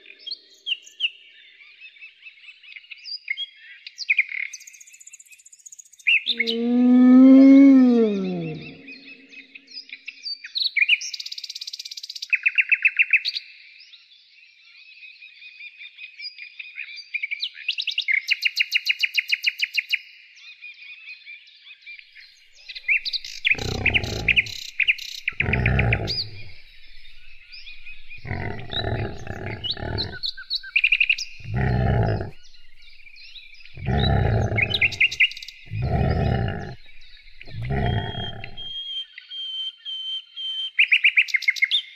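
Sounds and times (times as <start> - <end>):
bear growling: 7.2 - 9.0, 22.8 - 38.8
birds chirping and trilling: 22.6 - 39.0.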